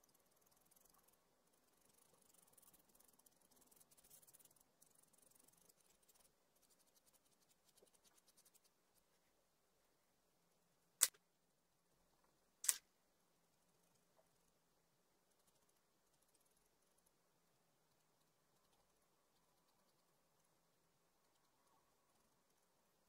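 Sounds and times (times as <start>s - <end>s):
pencil scratching on paper: 0.0s - 9.1s
sharp clicks: 12.6s - 12.8s.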